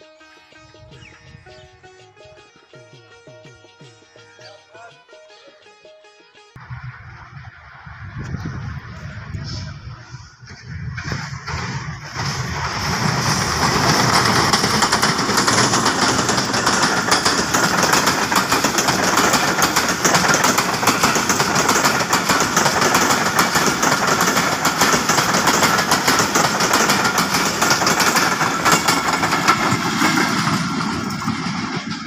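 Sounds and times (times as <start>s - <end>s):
train passing on rails: 6.6s - 32.0s.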